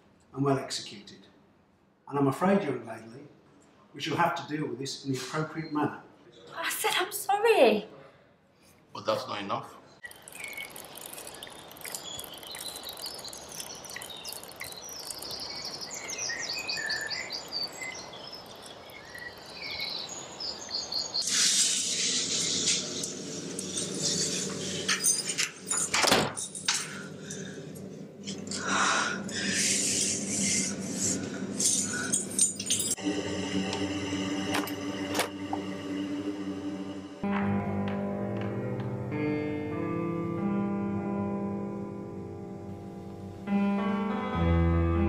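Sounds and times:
birds chirping and trilling: 10.0 - 21.4, 26.9 - 33.2
outdoor hiss: 10.0 - 25.5
dark soundtrack low tones: 33.0 - 45.0.

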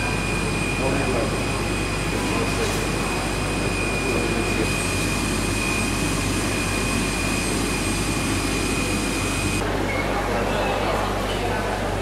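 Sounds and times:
jet engine whine: 0.0 - 12.0.

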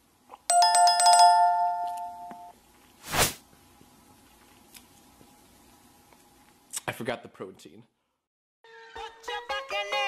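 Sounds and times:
bell chime: 0.5 - 2.5.

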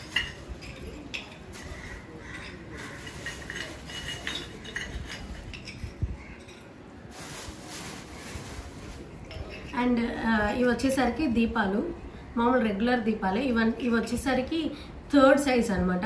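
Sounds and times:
clay lamps clinking: 0.0 - 6.8.

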